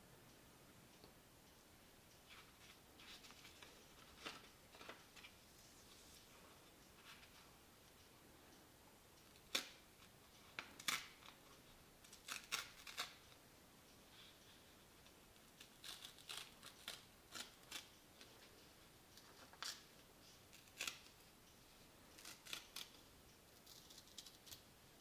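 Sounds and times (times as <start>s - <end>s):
paper crackling and tearing: 12.1s - 13.2s, 15.6s - 17.9s.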